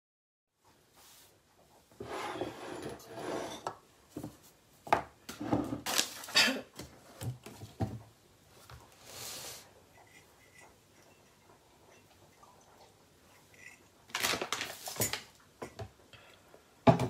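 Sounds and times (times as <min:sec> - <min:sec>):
rubbing and rustling handling noise: 0:00.6 - 0:16.0.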